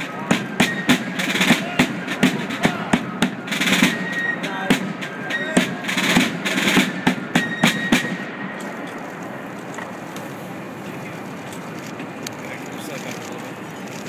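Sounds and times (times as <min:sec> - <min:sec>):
marching drums: 0:00.0 - 0:09.4.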